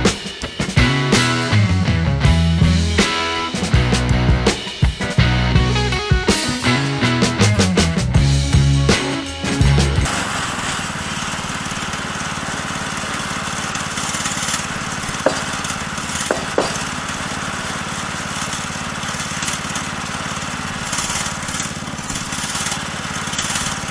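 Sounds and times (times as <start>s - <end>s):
small gasoline engine running: 10.0s - 23.9s
wooden board knocks: 15.2s - 15.5s, 16.3s - 16.9s.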